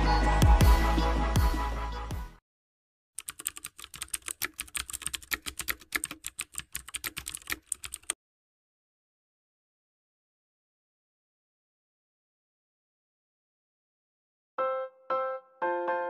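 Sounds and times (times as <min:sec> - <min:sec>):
keyboard typing: 0:03.2 - 0:08.2.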